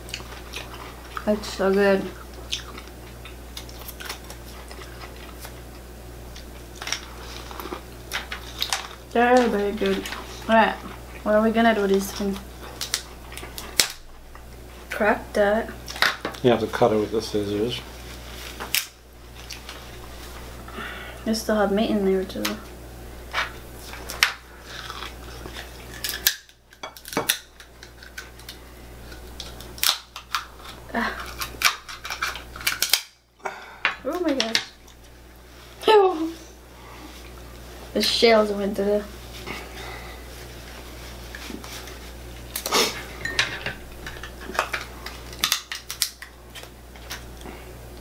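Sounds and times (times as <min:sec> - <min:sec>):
scissors cracking lobster shell: 0:24.1 - 0:33.2, 0:44.1 - 0:47.3.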